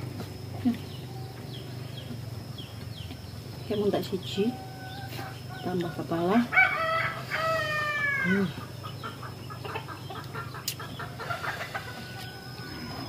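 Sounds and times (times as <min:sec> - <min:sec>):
rooster crowing: 0:06.3 - 0:08.4, 0:11.2 - 0:13.0
hens clucking: 0:07.3 - 0:13.0.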